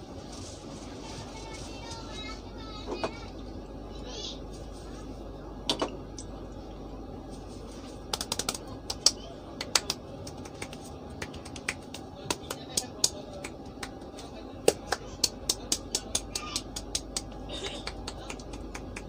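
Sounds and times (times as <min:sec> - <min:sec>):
hands clicking and patting on head: 0:08.1 - 0:19.0.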